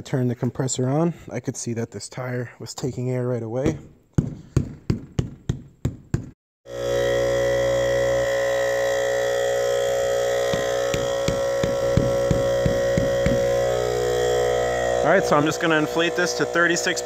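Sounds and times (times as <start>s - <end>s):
air compressor humming: 6.7s - 17.0s
sharp knocks: 10.5s - 13.6s.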